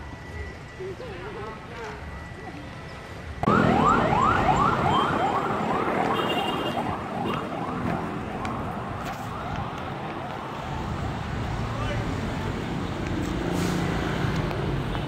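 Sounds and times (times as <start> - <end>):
electronic siren yelping: 3.4 - 9.8.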